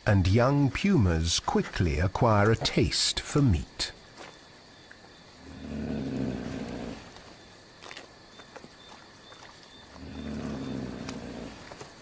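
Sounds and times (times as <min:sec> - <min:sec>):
puma growling: 0:05.2 - 0:08.0, 0:09.8 - 0:12.0
chewing clicks: 0:06.1 - 0:12.0.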